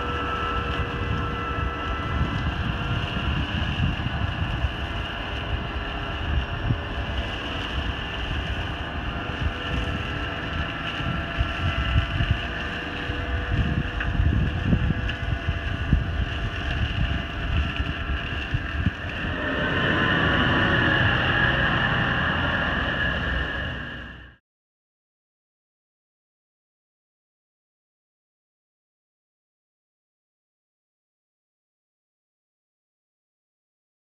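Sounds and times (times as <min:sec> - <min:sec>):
wind buffeting microphone: 0:00.0 - 0:24.3
tractor diesel engine running: 0:00.0 - 0:24.4.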